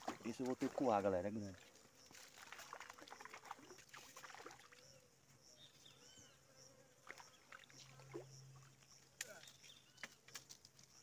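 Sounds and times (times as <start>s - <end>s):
small water splashes: 0.0s - 5.0s, 7.0s - 10.1s
insect buzzing: 1.3s - 11.0s.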